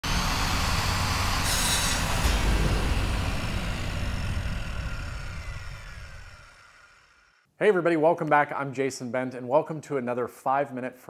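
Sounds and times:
hissing burst: 0.8s - 7.3s
deep rumble: 1.8s - 7.1s.

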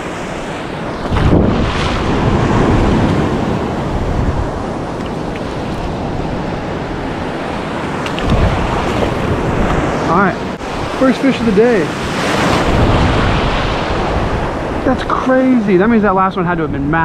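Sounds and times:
wind on microphone: 0.0s - 15.2s
surf washing and sloshing: 0.0s - 17.0s.

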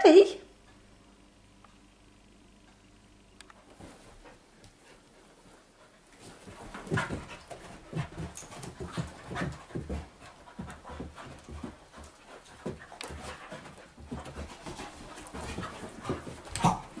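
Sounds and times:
paws scuffling on sofa: 3.6s - 17.0s
dogs panting: 4.0s - 17.0s.

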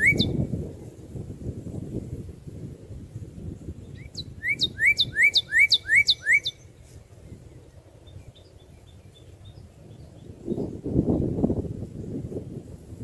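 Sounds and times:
bird whistling song: 0.0s - 0.4s, 3.8s - 11.4s.

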